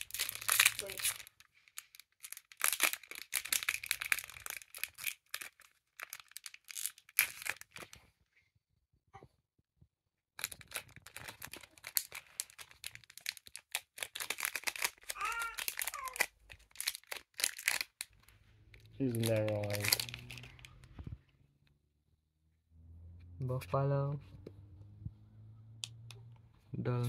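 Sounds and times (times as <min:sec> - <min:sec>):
cards rustling: 0:00.0 - 0:08.0, 0:10.4 - 0:21.2
foil wrappers tearing and crinkling: 0:00.0 - 0:08.0, 0:10.4 - 0:18.3, 0:18.9 - 0:20.8.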